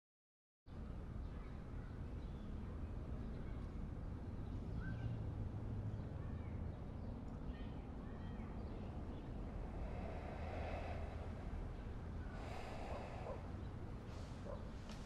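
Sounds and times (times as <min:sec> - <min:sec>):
steady low rumble: 0:08.4 - 0:14.5.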